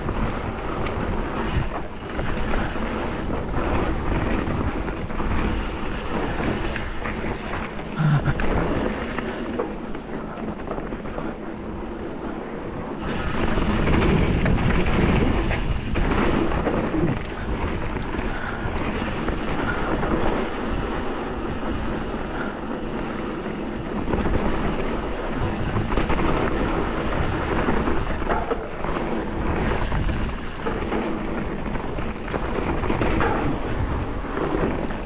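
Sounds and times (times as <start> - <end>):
bike rattling over bumps: 0.0 - 35.0
tyres rolling on loose dirt: 0.0 - 35.0
wind on microphone: 12.5 - 35.0.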